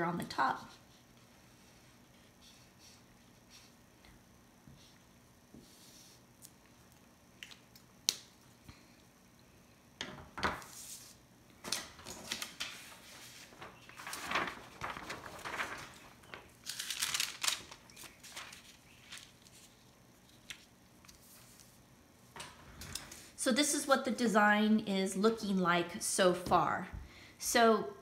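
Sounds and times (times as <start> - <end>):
paper rustling and crinkling: 10.6 - 21.8.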